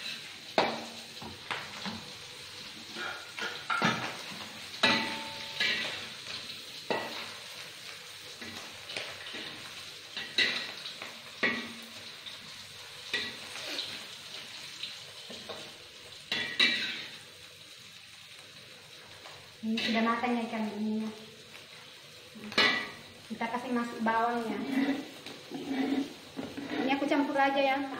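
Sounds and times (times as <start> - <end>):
spatula scraping a wok: 0.0 - 0.9, 2.8 - 12.4, 13.0 - 14.6, 16.3 - 17.2, 24.4 - 27.3
fish sizzling in hot oil: 0.0 - 27.9.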